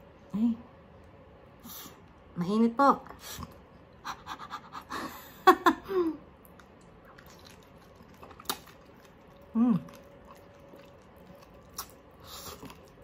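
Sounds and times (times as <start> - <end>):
person chewing: 6.4 - 13.0.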